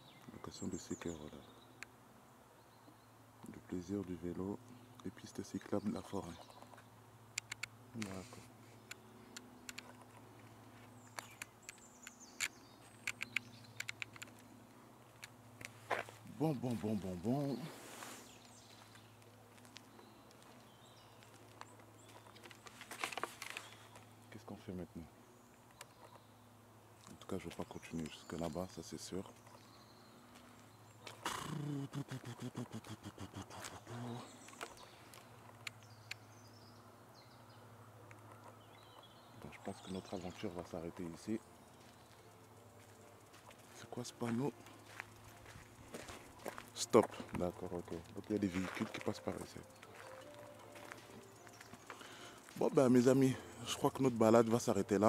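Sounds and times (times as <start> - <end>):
light sharp clicks: 6.4 - 10.2, 11.1 - 15.8
short clicks: 7.3 - 8.2
faint bird chirps: 48.0 - 53.9.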